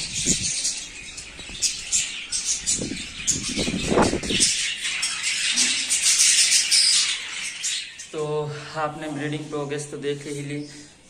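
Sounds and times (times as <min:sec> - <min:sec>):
budgerigars chirping: 0:00.0 - 0:09.6.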